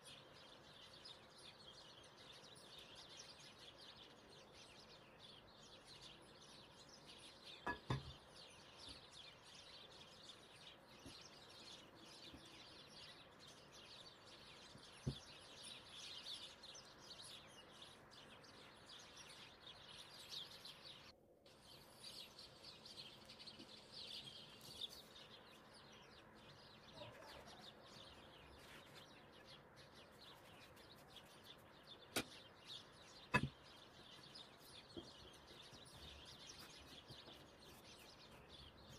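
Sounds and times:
faint bird chirping: 0.0 - 38.9.

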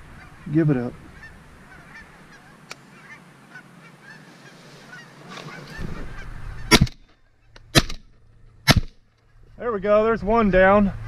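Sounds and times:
geese honking: 0.0 - 7.8
shotgun shot: 6.7 - 7.0, 7.7 - 8.0, 8.7 - 9.0.

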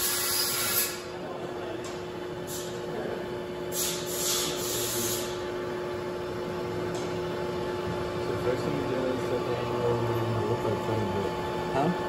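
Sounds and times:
machine hum: 0.0 - 12.0
short bursts of hiss: 3.7 - 5.3.

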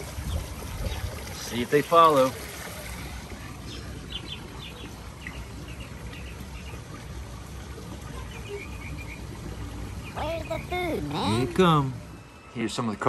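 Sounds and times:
water trickling and bubbling: 0.0 - 12.5.

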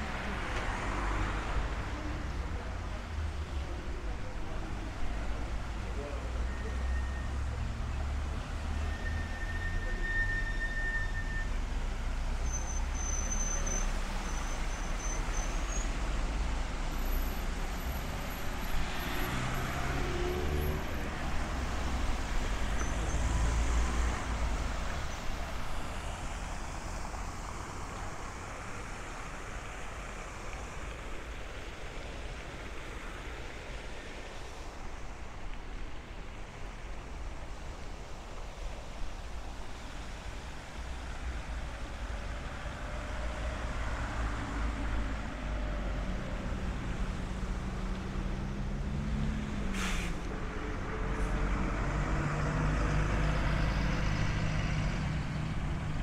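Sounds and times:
cars driving by: 0.0 - 56.0.

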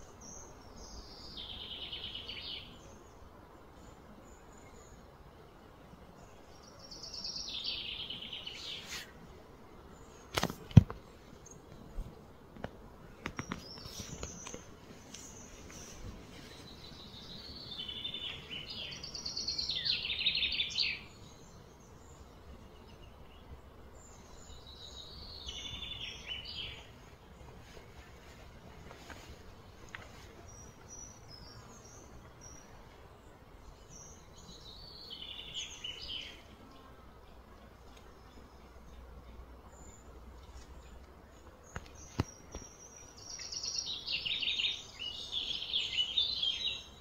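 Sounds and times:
outdoor hiss: 6.2 - 47.0
small birds trilling: 13.1 - 27.4, 28.9 - 47.0.

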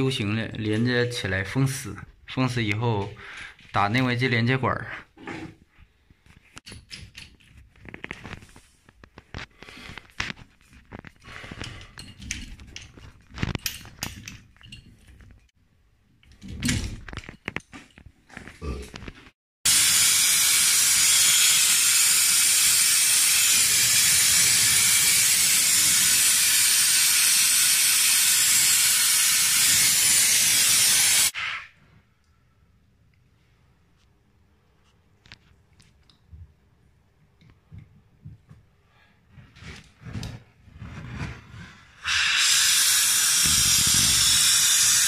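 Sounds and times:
tools clicking and knocking: 6.6 - 8.1, 10.6 - 15.5
gas jet hissing: 19.7 - 31.4, 42.0 - 45.0.

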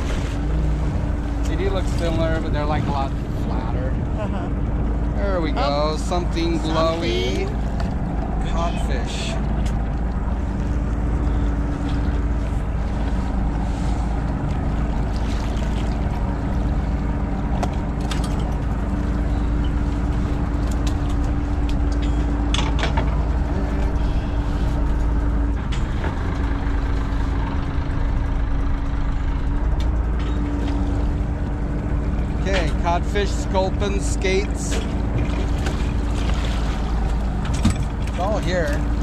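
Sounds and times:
boat engine humming: 0.0 - 39.0
gear clicking and clanking: 17.4 - 24.0, 24.7 - 36.2, 37.0 - 39.0.

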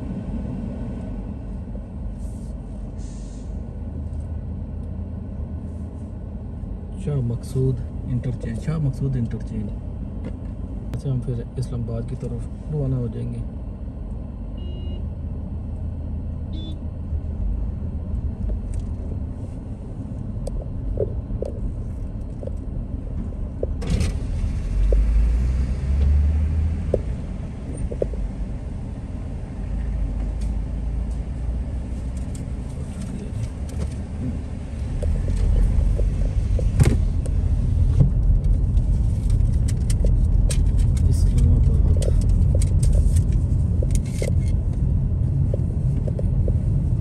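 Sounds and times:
car engine and tyre rumble: 0.0 - 47.0.

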